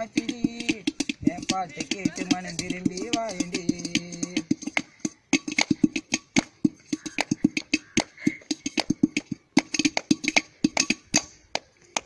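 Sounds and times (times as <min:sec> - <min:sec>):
metal pot drumming: 0:00.0 - 0:11.3
hand claps: 0:04.7 - 0:05.8, 0:07.2 - 0:12.0.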